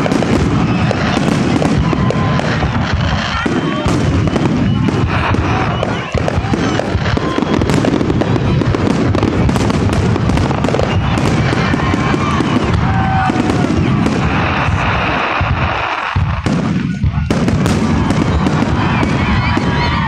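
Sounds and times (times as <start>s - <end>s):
fireworks bangs and crackling: 0.0s - 20.0s
fireworks whistling: 0.0s - 20.0s.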